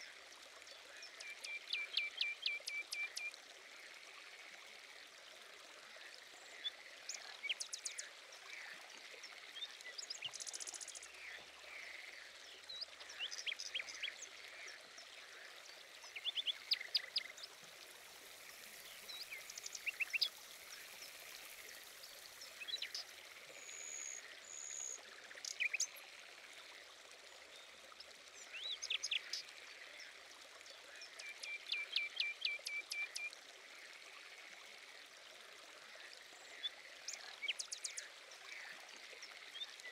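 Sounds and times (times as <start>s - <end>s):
running water hiss: 0.0s - 39.9s
small birds chirping: 12.6s - 26.0s.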